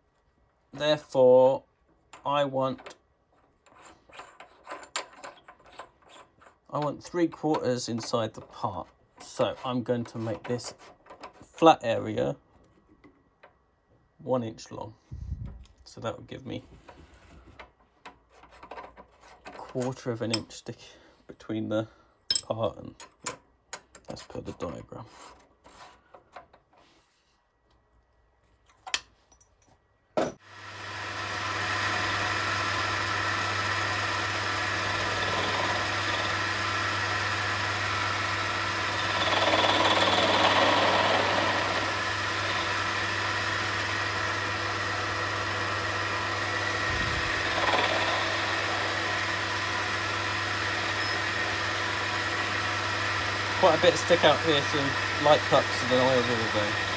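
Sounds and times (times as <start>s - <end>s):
lathe motor running with hum: 30.5s - 56.9s.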